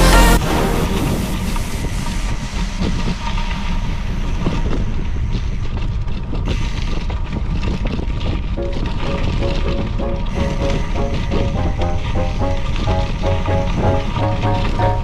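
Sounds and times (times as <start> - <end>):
bike rolling rumble: 0.0 - 15.0
wind: 0.4 - 11.7.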